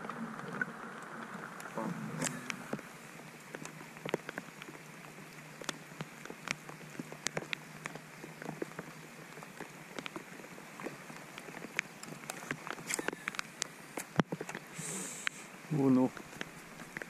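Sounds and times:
rain falling on a lake: 0:00.0 - 0:17.0.

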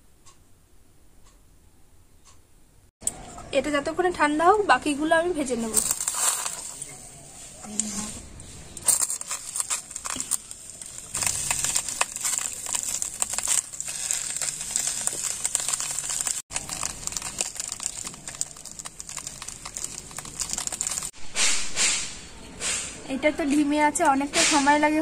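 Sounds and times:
banana leaves crinkling: 0:05.5 - 0:07.0, 0:08.8 - 0:21.1.

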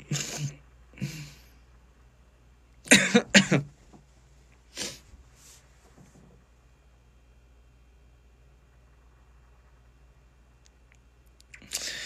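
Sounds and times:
man coughing: 0:00.0 - 0:01.4, 0:02.9 - 0:03.7.

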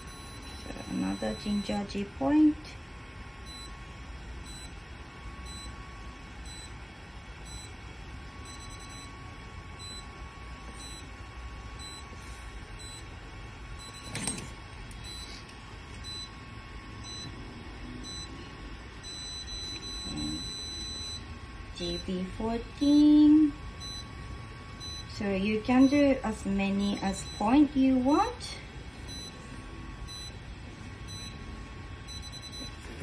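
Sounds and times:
faint steady tone: 0:16.0 - 0:32.8
short high beeps: 0:19.6 - 0:20.8.

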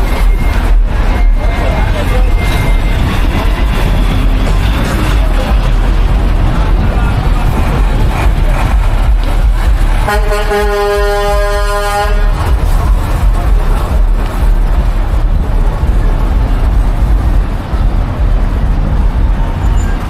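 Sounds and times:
street traffic rumble: 0:00.0 - 0:20.0
vehicle horn: 0:10.0 - 0:12.6.

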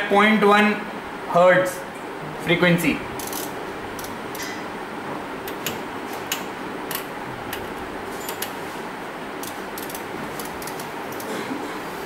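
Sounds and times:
rotary knob clicks: 0:03.2 - 0:04.5, 0:09.4 - 0:11.3.

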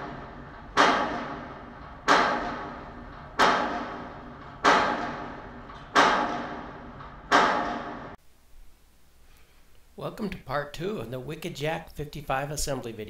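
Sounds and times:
sharp impact hits: 0:00.0 - 0:08.2.

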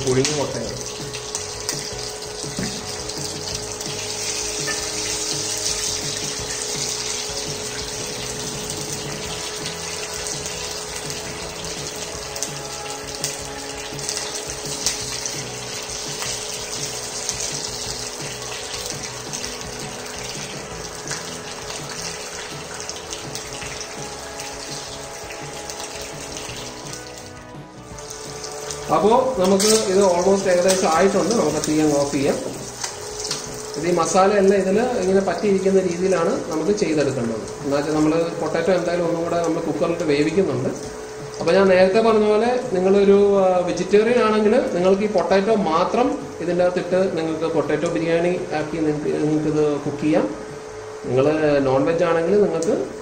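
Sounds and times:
food sizzling in oil: 0:00.0 - 0:47.2.

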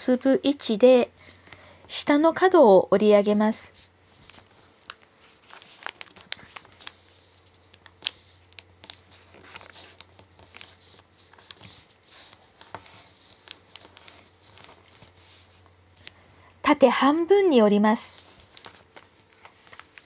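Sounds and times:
paper being folded: 0:03.7 - 0:16.2, 0:17.9 - 0:20.0.

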